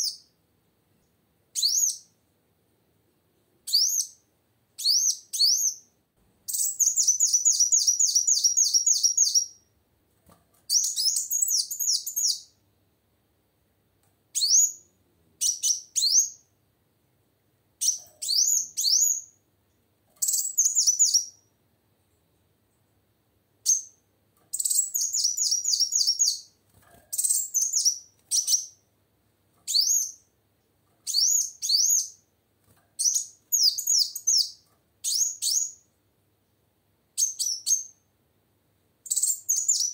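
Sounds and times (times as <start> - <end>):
bird chirping rapidly: 4.8 - 5.9, 6.5 - 9.6, 10.7 - 12.5, 20.2 - 21.4, 23.6 - 26.5, 27.2 - 28.8, 29.7 - 30.2, 31.1 - 32.2, 33.0 - 35.8, 39.0 - 39.9.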